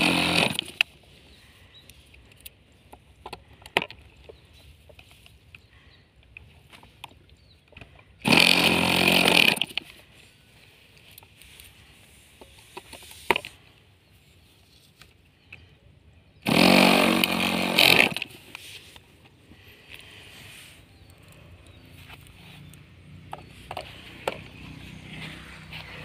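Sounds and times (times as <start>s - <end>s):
electric starter whirring: 0.0s - 0.9s, 8.2s - 10.0s, 16.4s - 18.6s.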